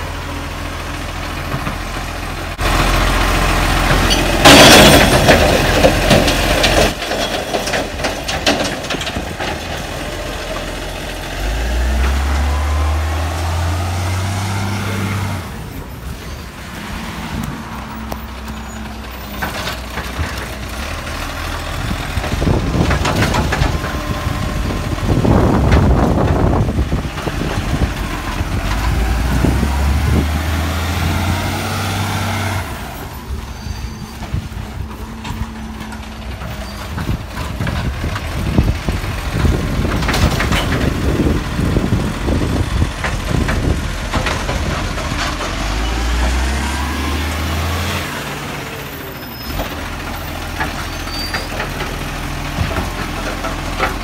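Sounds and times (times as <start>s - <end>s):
truck engine revving: 0.0s - 54.0s
bin load crashing into hopper: 3.9s - 9.8s.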